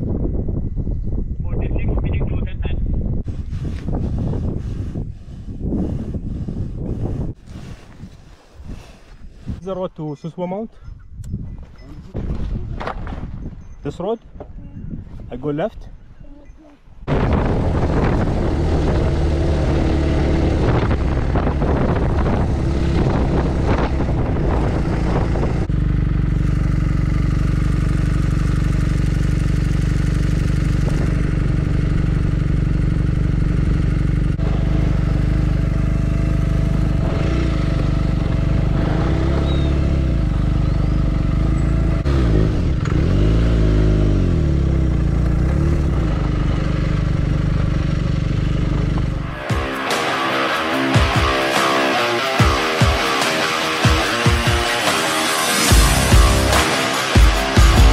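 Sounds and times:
rough wind noise: 0:00.0 - 0:09.8, 0:10.8 - 0:16.2, 0:16.9 - 0:25.8, 0:27.8 - 0:49.8
road noise: 0:16.7 - 0:57.9
motorcycle engine running: 0:17.1 - 0:57.9.

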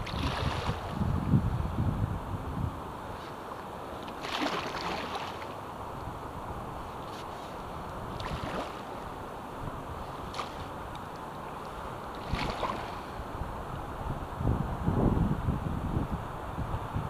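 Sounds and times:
paddle splashing in water: 0:00.0 - 0:01.0, 0:04.0 - 0:05.6, 0:08.1 - 0:09.2, 0:10.1 - 0:11.0, 0:12.1 - 0:13.1
rushing water and wind: 0:00.0 - 0:17.0.

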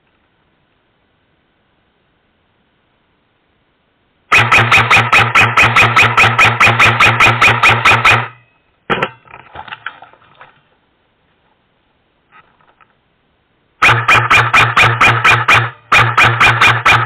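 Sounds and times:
airsoft gun full-auto burst: 0:04.3 - 0:08.4, 0:13.8 - 0:17.0
faint handling noise: 0:08.9 - 0:13.0.

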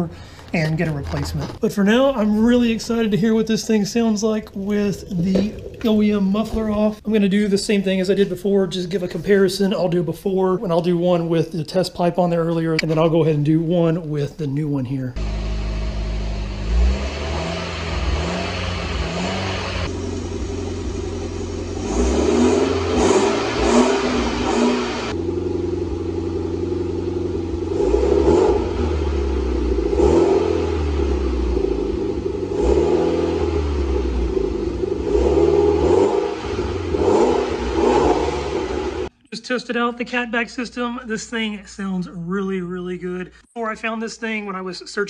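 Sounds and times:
car exhaust idling and revving: 0:15.2 - 0:39.1.

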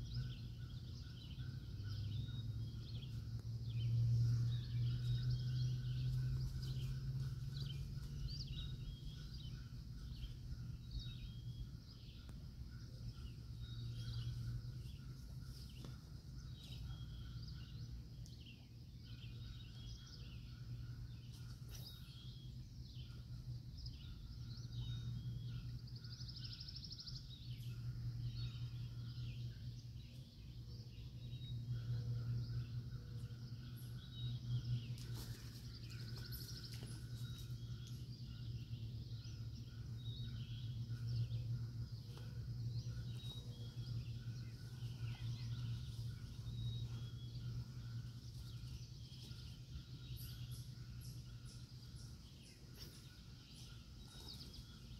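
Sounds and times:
birds chirping: 0:00.0 - 0:54.9
low rumble: 0:30.6 - 0:54.9.

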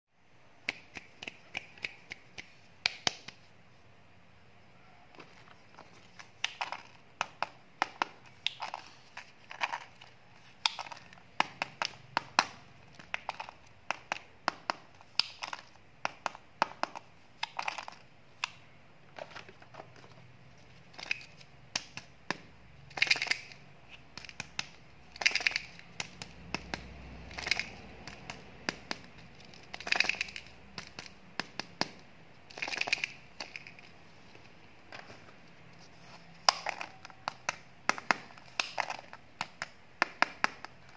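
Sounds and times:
plastic candy packages clicking: 0:05.2 - 0:20.2, 0:20.8 - 0:34.0, 0:36.3 - 0:40.9.

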